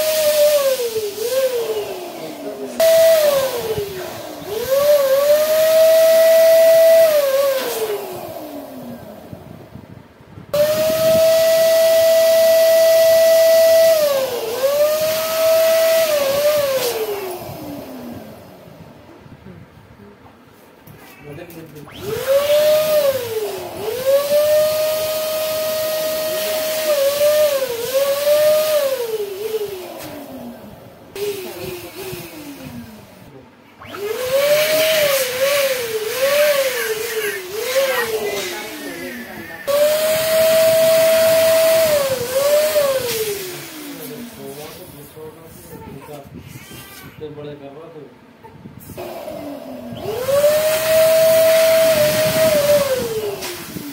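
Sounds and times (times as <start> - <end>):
electric pump whining: 0.0 - 19.1, 21.6 - 45.5, 48.9 - 53.9
rush of air inflating balloon: 0.0 - 19.7, 21.9 - 47.3, 48.7 - 53.9
rush of air: 49.9 - 53.9.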